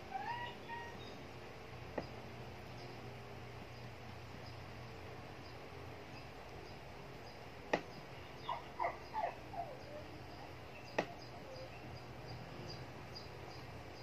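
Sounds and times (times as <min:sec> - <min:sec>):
dog whining: 0:00.1 - 0:01.0, 0:08.4 - 0:10.1.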